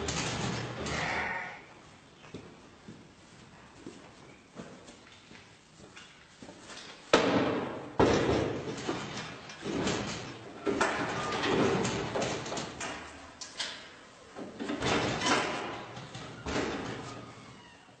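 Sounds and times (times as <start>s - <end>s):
metal gates clanking and banging: 0.0s - 1.5s, 7.2s - 17.2s.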